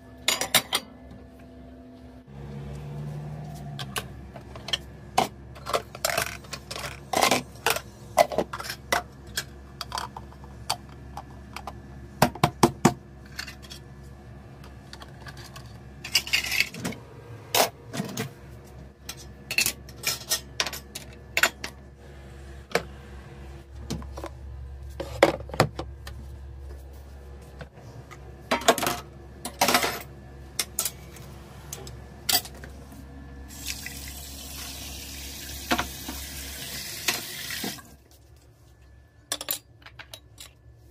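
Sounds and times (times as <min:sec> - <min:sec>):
dishes clacking and knocking: 0:00.2 - 0:00.9, 0:03.8 - 0:13.8
tap water running into a sink: 0:33.5 - 0:37.9.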